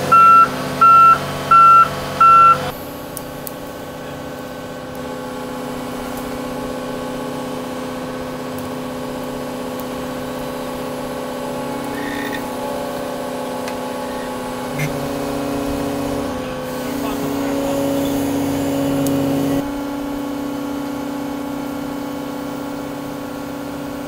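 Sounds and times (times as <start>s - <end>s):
excavator engine and hydraulics drone: 0.0s - 24.0s
travel alarm beep: 0.1s - 2.7s.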